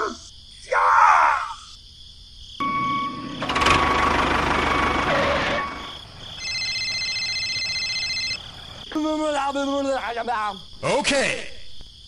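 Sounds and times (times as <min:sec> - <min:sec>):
high two-note tone: 0:02.6 - 0:03.8
tractor engine revving and rattling: 0:02.6 - 0:07.0, 0:08.3 - 0:08.8.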